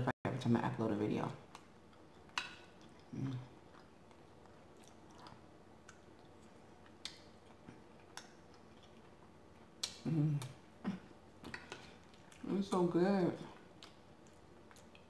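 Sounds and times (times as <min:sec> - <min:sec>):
wet chewing mouth clicks: 0:01.5 - 0:09.2, 0:09.8 - 0:10.6, 0:11.4 - 0:12.5, 0:13.8 - 0:15.0
low vocal sound: 0:10.0 - 0:11.1.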